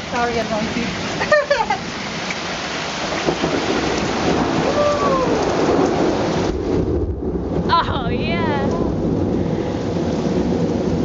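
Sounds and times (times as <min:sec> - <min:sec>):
heavy rain pouring: 0:00.0 - 0:11.0
person shouting: 0:07.7 - 0:09.0.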